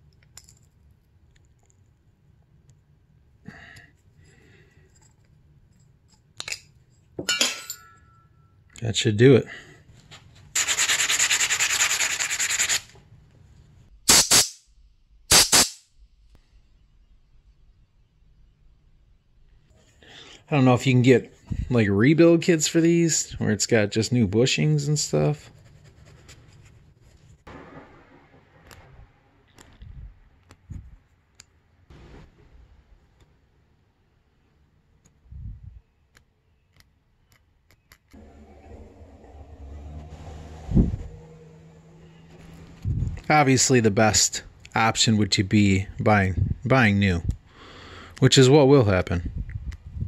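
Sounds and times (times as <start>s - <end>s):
rapid rasping scrape: 10.6s - 12.9s.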